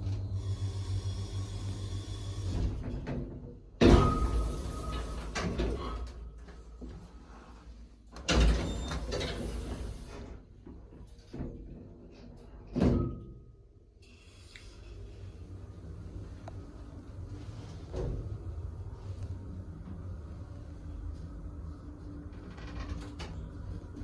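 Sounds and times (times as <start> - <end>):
sliding doors closing: 0.0 - 6.4, 7.2 - 10.9, 14.1 - 24.0
loud bang of doors: 2.7 - 4.6.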